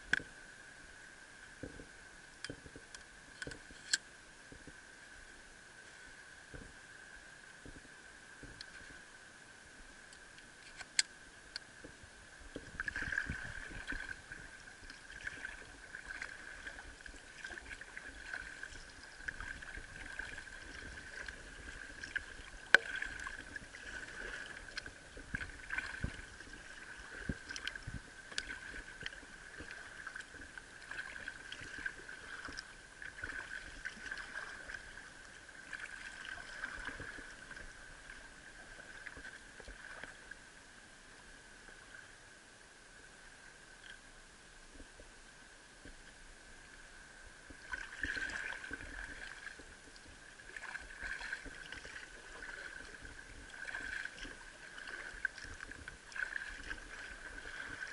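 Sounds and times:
water lapping against hull: 5.8 - 40.6, 45.8 - 57.9
paddle splashes: 11.6 - 40.3, 47.4 - 57.9.

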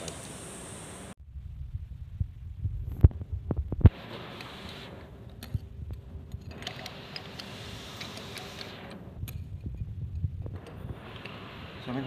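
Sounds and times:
compressed air blow gun hissing: 0.0 - 1.2, 6.7 - 9.0, 10.6 - 12.0.

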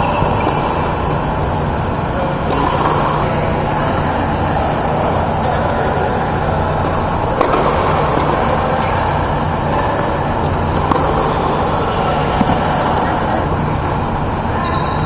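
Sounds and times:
blower fans humming: 0.0 - 15.0
racket hitting tennis ball: 2.5 - 3.4, 6.8 - 13.6.

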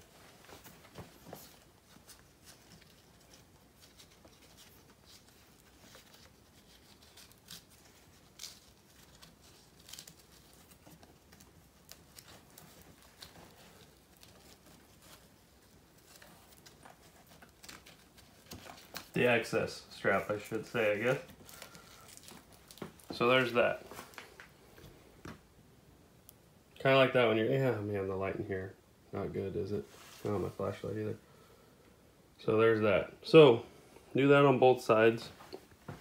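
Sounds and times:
strap rustling and clicking: 0.0 - 19.3, 19.9 - 25.4.

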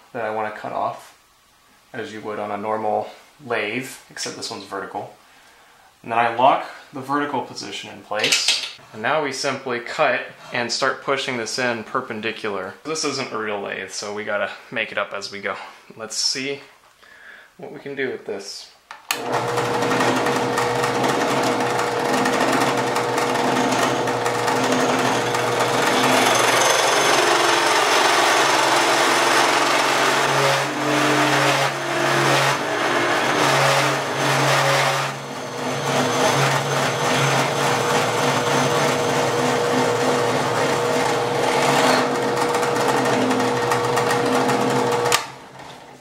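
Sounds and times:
drill press droning: 19.1 - 45.8
chisel scraping spinning blank: 21.0 - 32.6, 33.3 - 40.3.

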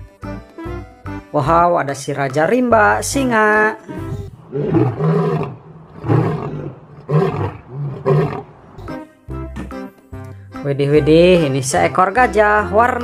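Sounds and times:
lion roaring: 3.9 - 8.8.

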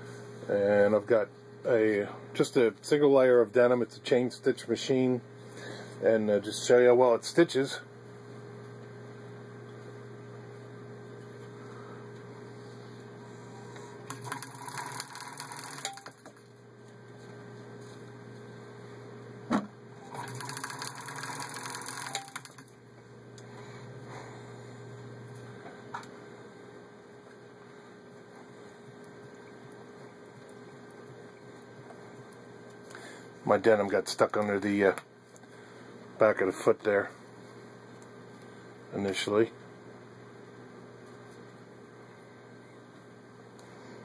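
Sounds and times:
low electrical hum: 0.0 - 44.0
sewing machine stitching: 14.1 - 16.2, 20.0 - 22.6.

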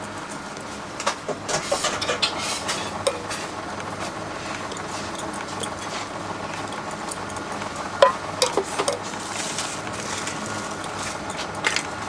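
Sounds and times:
steel ladle clinking on containers: 3.1 - 3.4, 6.6 - 9.1.

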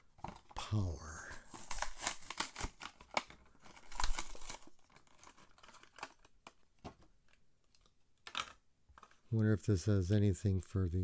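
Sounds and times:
plastic packaging crinkling: 0.2 - 6.7
toy car clicking in plastic shell: 7.7 - 9.2.

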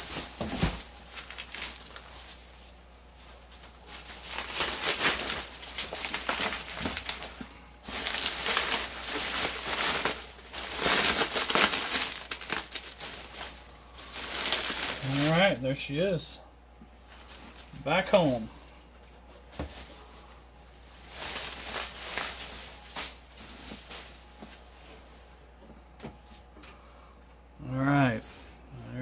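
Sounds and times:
bubble wrap crinkling: 0.0 - 15.6, 17.0 - 18.4, 19.2 - 25.2.

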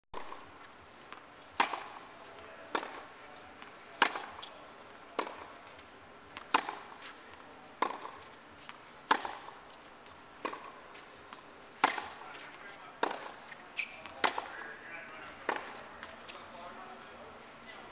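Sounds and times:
tennis ball hits: 1.5 - 2.1, 2.7 - 4.5, 5.2 - 5.6, 6.3 - 9.6, 10.4 - 14.6, 15.4 - 16.2.

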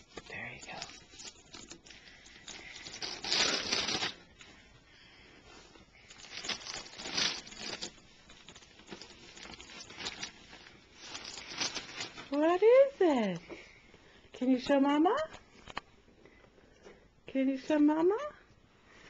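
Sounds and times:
wrapping paper tearing and rustling: 0.0 - 4.4, 6.0 - 12.9.

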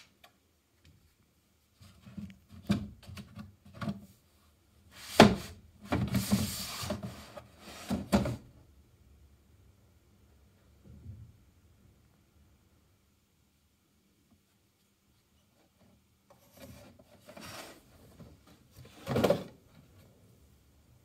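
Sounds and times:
boxes scraping on shelf: 4.9 - 8.5, 16.3 - 19.7.

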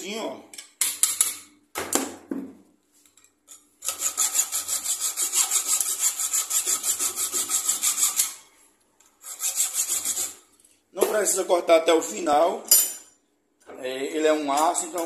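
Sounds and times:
hacksaw cutting steel: 3.8 - 8.4, 9.2 - 10.4.

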